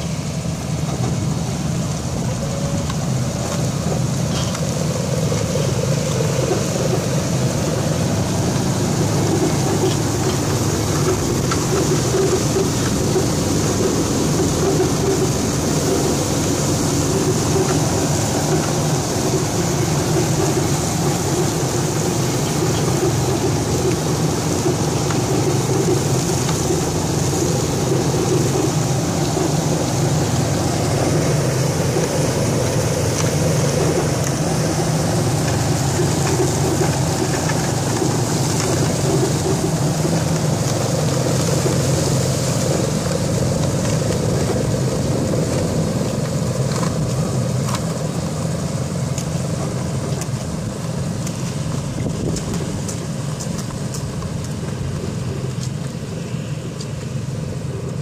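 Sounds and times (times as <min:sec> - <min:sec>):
asphalt pouring hiss: 0:00.0 - 0:58.0
conveyor running: 0:00.0 - 0:58.0
truck diesel engine: 0:00.0 - 0:58.0.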